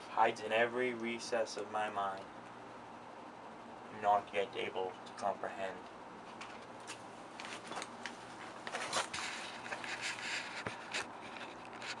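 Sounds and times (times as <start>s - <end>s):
person rustling and scraping: 6.2s - 12.0s.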